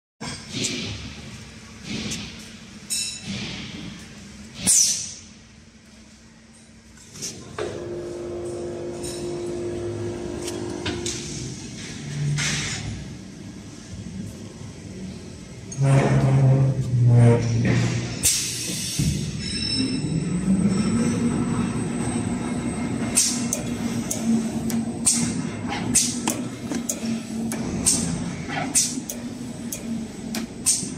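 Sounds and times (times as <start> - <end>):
machine hum: 7.5 - 12.4, 20.0 - 30.9
machine humming: 7.6 - 11.9
sharp machine clacks: 28.8 - 30.9.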